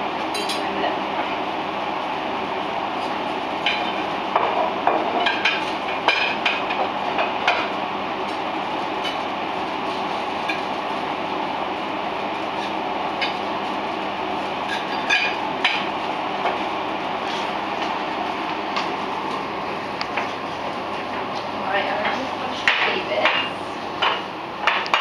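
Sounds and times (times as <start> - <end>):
kitchen background noise: 0.2 - 2.1, 2.9 - 11.2, 12.1 - 25.0
plates and utensil clinking: 14.6 - 15.9.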